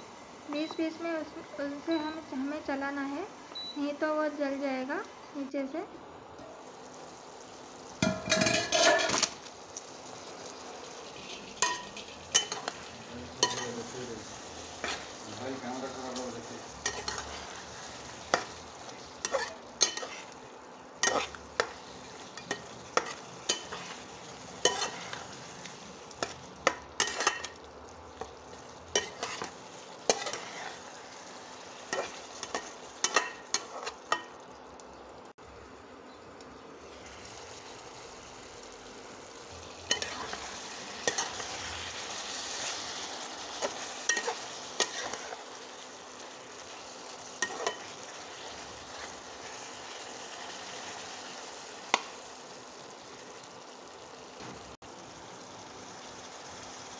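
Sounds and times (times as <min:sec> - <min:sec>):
food sizzling: 0:00.0 - 0:56.9
spatula scraping pan: 0:08.0 - 0:09.4, 0:10.5 - 0:15.2, 0:16.7 - 0:20.4, 0:21.0 - 0:25.5, 0:26.1 - 0:27.6, 0:28.2 - 0:34.3, 0:39.9 - 0:45.6, 0:46.7 - 0:50.8.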